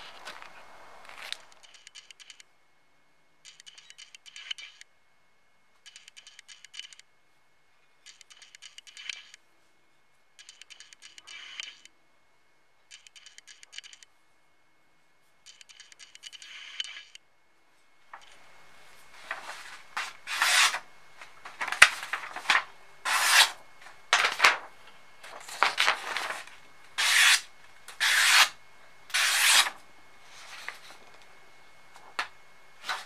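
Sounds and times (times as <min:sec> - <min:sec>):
knife blade slicing paper: 0:20.0 - 0:20.8, 0:21.6 - 0:23.6, 0:25.5 - 0:29.8.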